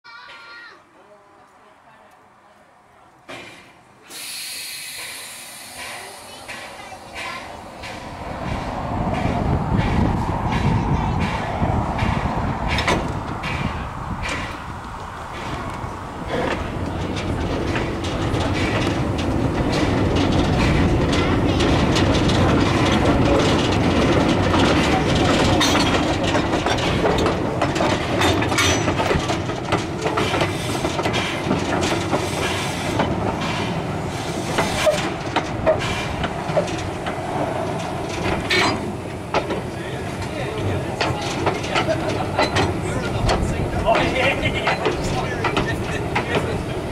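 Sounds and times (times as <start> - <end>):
steam locomotive rumbling: 3.2 - 46.9
wheels clattering on rails: 3.2 - 46.9
metallic knocks and clanks: 6.5 - 14.7, 16.3 - 33.8, 41.0 - 46.6.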